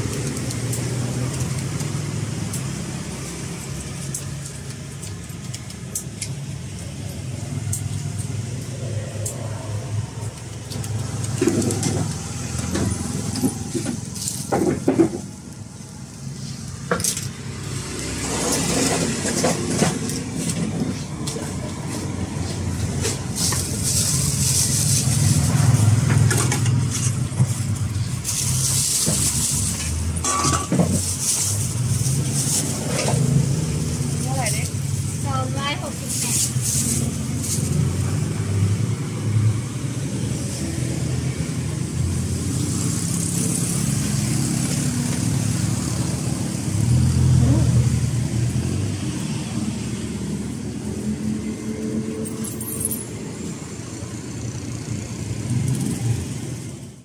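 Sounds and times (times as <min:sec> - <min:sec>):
vehicle engine humming: 0:00.0 - 0:57.0
plastic bags rustling: 0:20.0 - 0:35.2.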